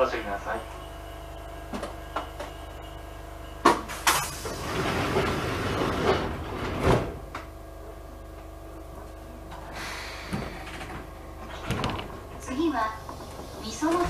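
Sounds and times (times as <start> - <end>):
train equipment humming: 0.0 - 14.0
train doors sliding with air rush: 3.6 - 7.4, 9.6 - 14.0.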